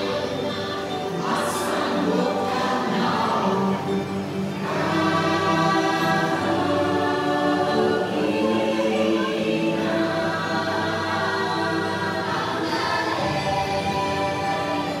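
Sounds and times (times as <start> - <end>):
choir singing held notes: 0.0 - 15.0
music: 0.0 - 15.0.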